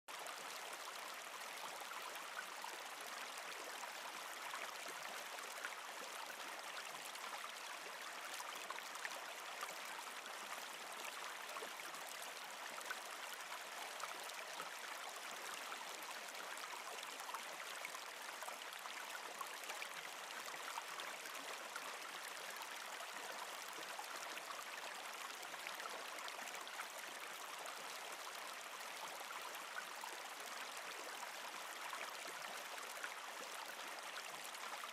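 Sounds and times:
stream flowing over rocks: 0:00.1 - 0:34.9.

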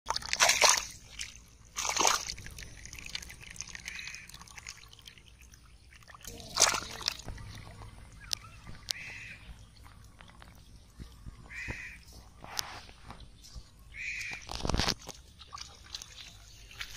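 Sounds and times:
loud splashes: 0:00.1 - 0:04.8, 0:06.1 - 0:07.8
splashing in muddy water: 0:00.1 - 0:16.9.

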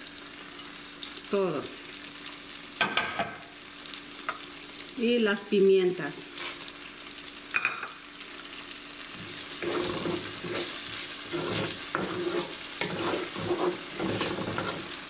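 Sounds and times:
vegetables sizzling in oil: 0:00.0 - 0:15.0
wooden spoon scraping a pan: 0:09.2 - 0:15.0.

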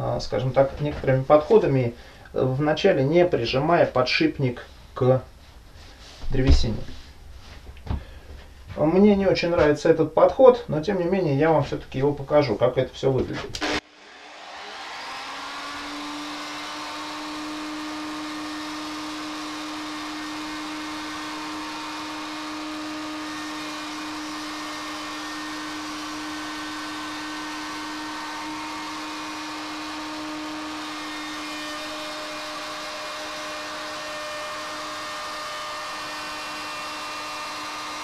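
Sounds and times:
router cutting wood: 0:13.5 - 0:38.0.

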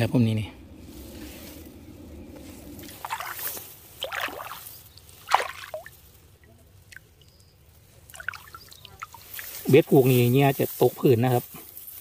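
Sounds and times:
shallow water splashing: 0:00.6 - 0:07.3, 0:07.9 - 0:09.8.

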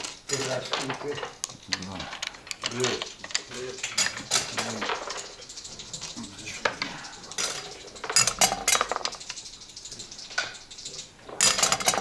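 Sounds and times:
dice rattling and clattering: 0:00.0 - 0:09.5
checkers clicking on board: 0:00.0 - 0:12.0.

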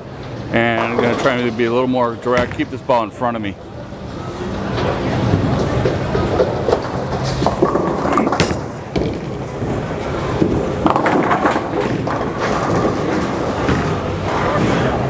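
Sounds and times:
bowling alley din: 0:00.0 - 0:15.0
bowling ball rolling: 0:00.1 - 0:03.0, 0:03.7 - 0:15.0
bowling pins clattering: 0:00.5 - 0:03.0, 0:04.7 - 0:15.0
ball knocking pins: 0:05.8 - 0:14.9.

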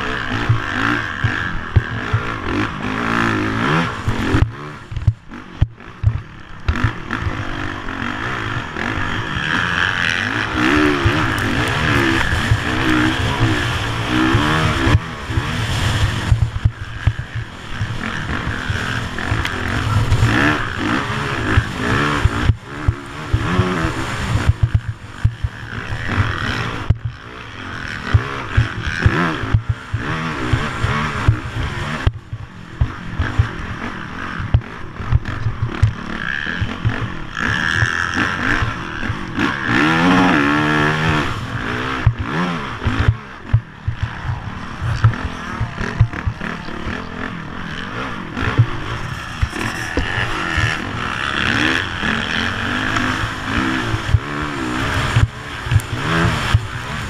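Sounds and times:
dirt bike engine revving: 0:00.0 - 0:57.0
knocks and rattles over bumps: 0:03.6 - 0:07.5, 0:47.7 - 0:57.0.

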